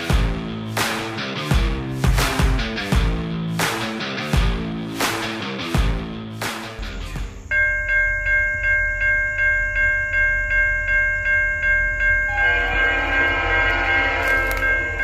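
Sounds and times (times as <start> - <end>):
music: 0.0 - 15.0
bell ringing: 7.5 - 15.0
train horn: 12.3 - 15.0.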